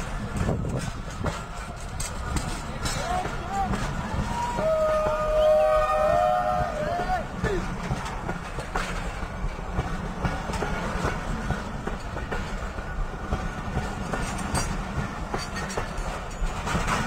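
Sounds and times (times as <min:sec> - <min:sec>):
diesel locomotive engine rumble: 0:00.0 - 0:17.0
train clicks and clacks: 0:00.0 - 0:17.0.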